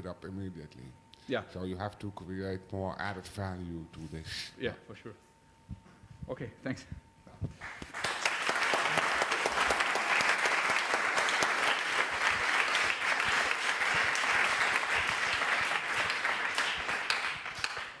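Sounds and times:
audience applauding: 7.6s - 18.0s.

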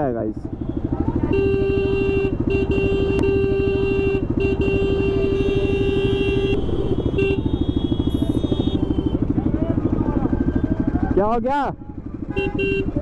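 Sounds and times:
motorcycle engine running: 0.0s - 13.0s
vehicle horn: 0.6s - 9.4s, 12.3s - 13.0s.

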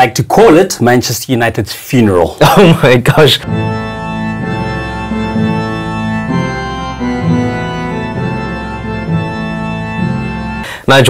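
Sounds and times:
slow organ chords: 3.4s - 10.9s.

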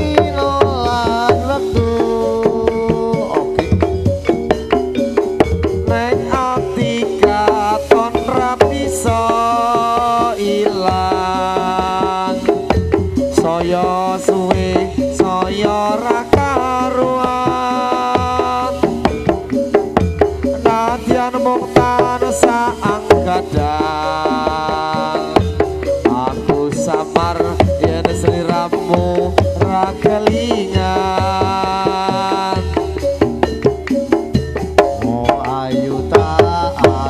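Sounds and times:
wavering pitched melody: 0.0s - 15.9s
hand drums beating fast: 0.0s - 37.0s.

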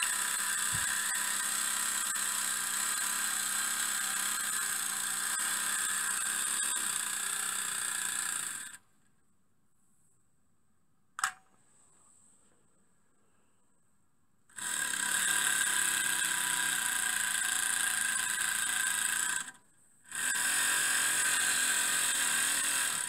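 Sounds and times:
miniature steam engine whirring: 0.0s - 8.8s, 14.5s - 23.0s
sharp click: 11.2s - 11.5s.

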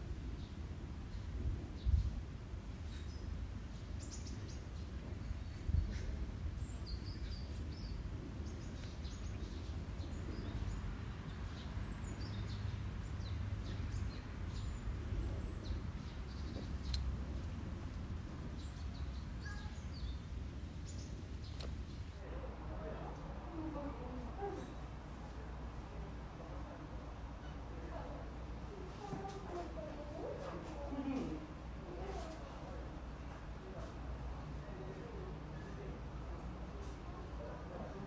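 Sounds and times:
small birds chirping: 0.3s - 25.4s.

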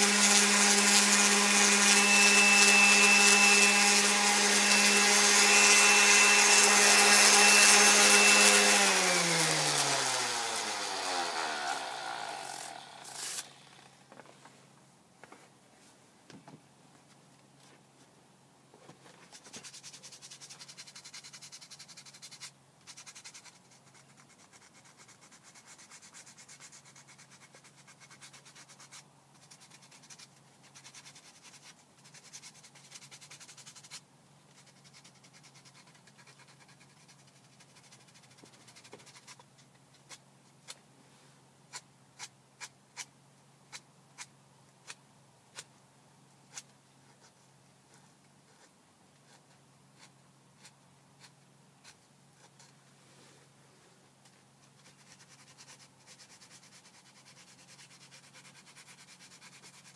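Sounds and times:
sandpaper rasping on wood: 0.0s - 13.4s, 19.4s - 34.0s, 34.6s - 39.4s, 54.8s - 59.9s.

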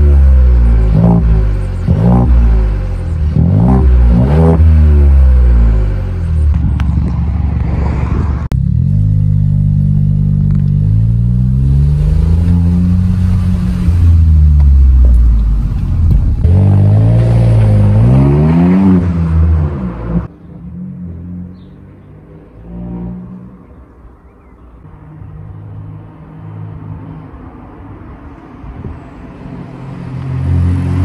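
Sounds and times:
car engine revving loudly: 0.0s - 6.1s, 16.4s - 20.3s.

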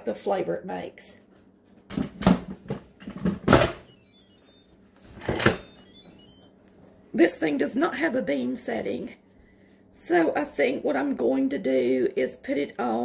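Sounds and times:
electronic chime beeps: 3.8s - 4.8s, 5.5s - 6.5s.

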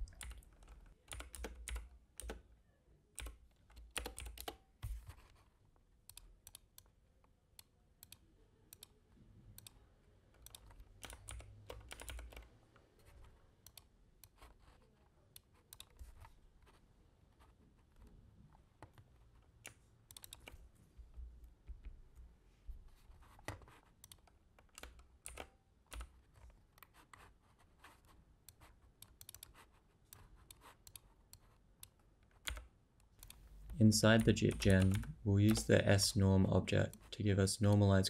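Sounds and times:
typing on keyboard: 0.0s - 2.4s, 3.2s - 5.3s, 10.4s - 14.8s, 19.6s - 20.6s, 23.2s - 35.8s.

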